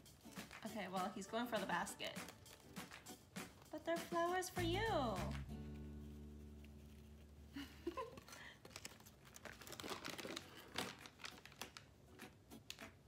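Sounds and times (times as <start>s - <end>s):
packaging crinkling and rustling: 7.9s - 12.0s.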